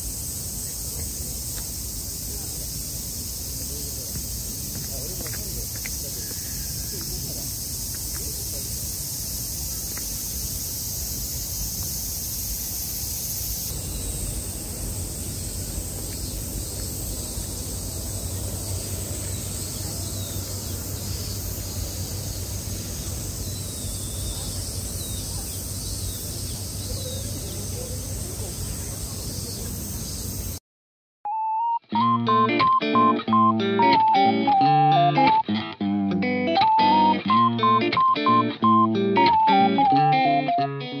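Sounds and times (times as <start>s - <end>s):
high-pitched insect drone: 0.0s - 30.6s, 32.3s - 35.5s, 36.6s - 40.8s
faint chirps: 0.3s - 30.6s.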